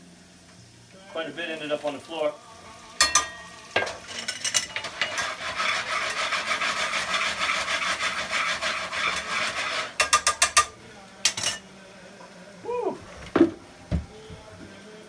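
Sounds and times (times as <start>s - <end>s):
food frying in butter: 0.2s - 11.6s
tongs scraping a skillet: 2.0s - 11.7s.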